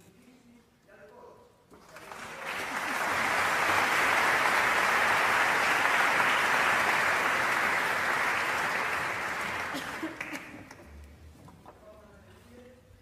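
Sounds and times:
audience applauding: 1.8s - 10.9s.

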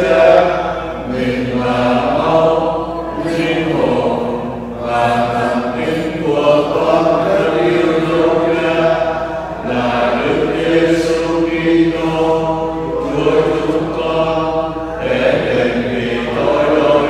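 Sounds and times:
voices chanting a prayer: 0.0s - 17.0s.

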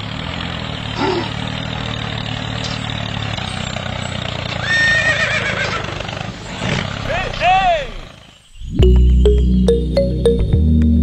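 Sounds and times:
toy tractor motor hum: 0.0s - 8.4s
horse whinnying: 4.5s - 8.0s.

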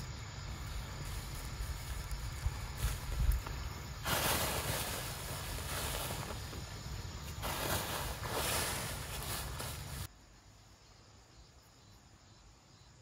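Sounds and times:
wind buffeting microphone: 1.3s - 3.8s.

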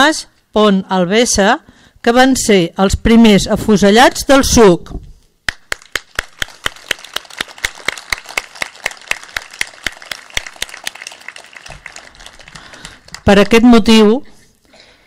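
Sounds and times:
close hands clapping sharply: 5.5s - 13.8s
crowd applauding: 5.5s - 13.8s.

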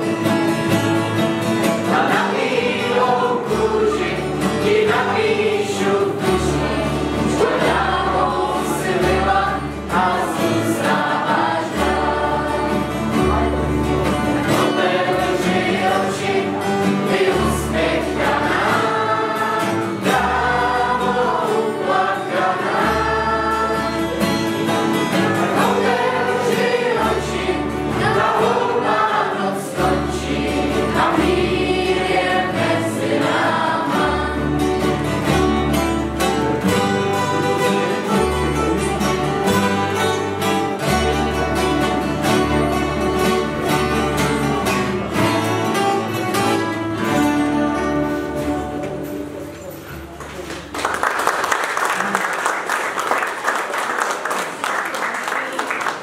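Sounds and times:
acoustic guitars strumming: 0.0s - 50.7s
group of voices singing: 0.7s - 42.7s.

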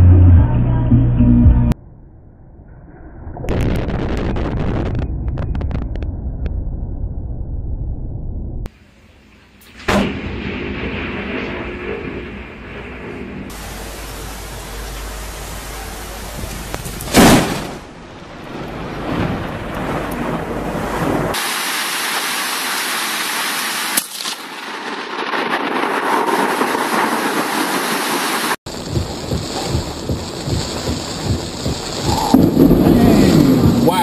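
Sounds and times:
thunder rumble: 0.0s - 21.6s, 24.5s - 34.0s
thunderclap: 3.2s - 8.7s, 9.6s - 21.6s, 24.6s - 34.0s
heavy rain: 13.4s - 34.0s
wind buffeting microphone: 28.7s - 34.0s.

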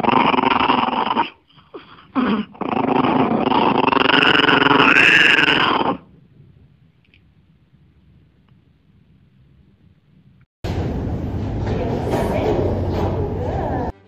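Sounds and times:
small dog growling: 0.0s - 7.4s.

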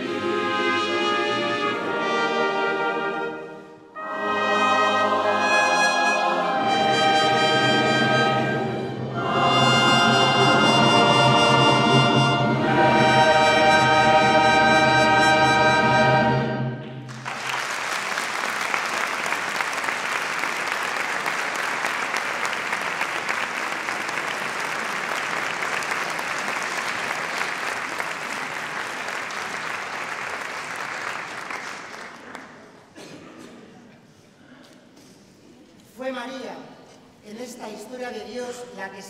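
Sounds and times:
choir singing: 0.0s - 16.7s
audience applause: 17.1s - 32.9s.

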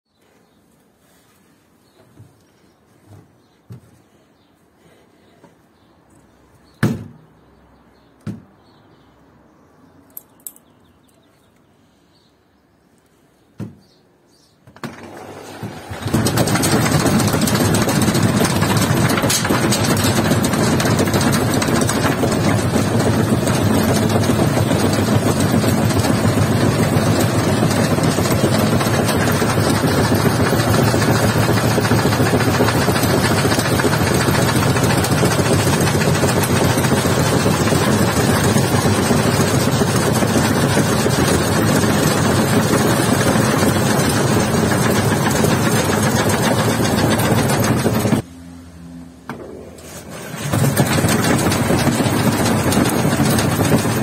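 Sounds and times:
washing machine spinning: 14.8s - 48.3s, 49.3s - 54.0s.

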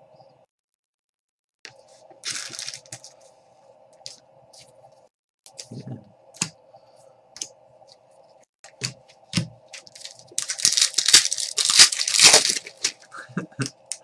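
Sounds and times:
foil wrapper tearing and crinkling: 2.2s - 3.0s, 9.8s - 13.1s.

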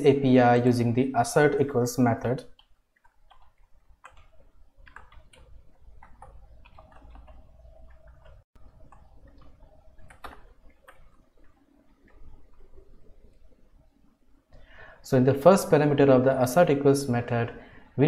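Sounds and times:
low steady hum: 0.0s - 18.0s
keyboard typing: 2.5s - 13.6s.

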